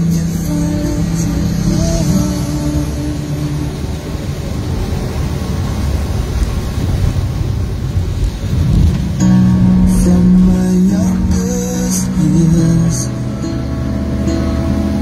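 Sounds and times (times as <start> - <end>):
background music: 0.0 - 5.5, 9.2 - 15.0
car engine and tyre rumble: 0.0 - 15.0.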